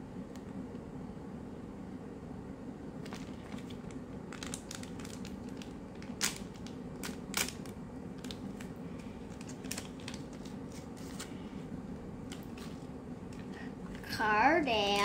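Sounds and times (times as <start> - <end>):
plastic packet crinkling: 3.0 - 11.3.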